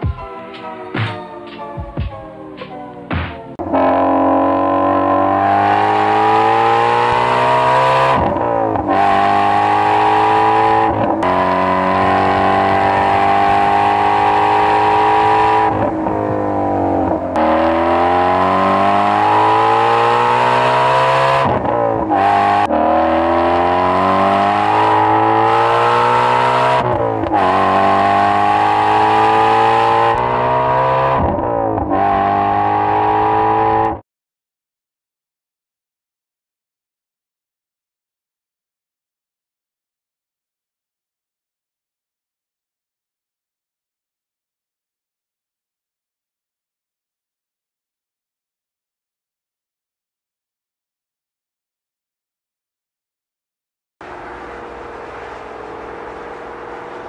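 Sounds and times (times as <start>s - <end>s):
car engine accelerating: 3.6s - 34.0s, 54.0s - 57.0s.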